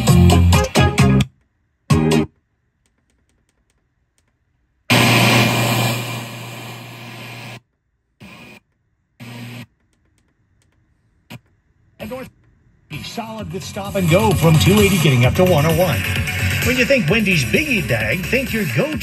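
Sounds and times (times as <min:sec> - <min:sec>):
radio static hiss with low hum: 0:04.9 - 0:07.6, 0:08.2 - 0:08.6, 0:11.2 - 0:19.0.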